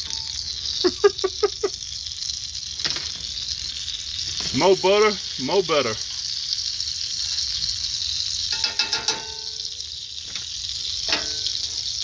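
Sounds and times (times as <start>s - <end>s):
butter sizzling in a skillet: 0.0s - 12.0s
fork clattering against pan: 8.5s - 9.7s, 11.1s - 11.8s.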